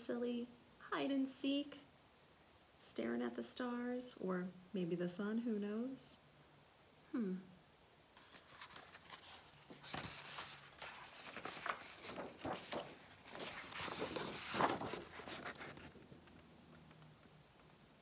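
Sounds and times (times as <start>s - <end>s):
pages of book turning: 8.2s - 17.0s.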